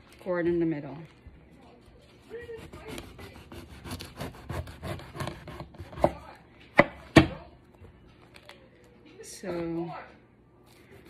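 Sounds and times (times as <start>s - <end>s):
knife sawing through fruit: 2.2s - 6.0s.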